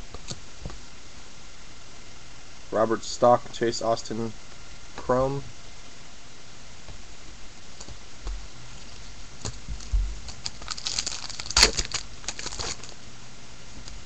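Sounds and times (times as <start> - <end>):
plastic wrapper tearing and crinkling: 8.8 - 13.0
dull bumps: 9.5 - 10.5.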